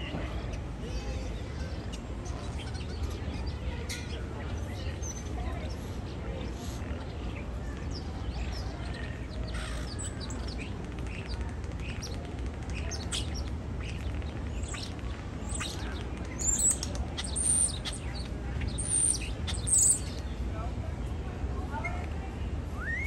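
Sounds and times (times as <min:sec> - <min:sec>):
starling singing: 0:07.9 - 0:20.2.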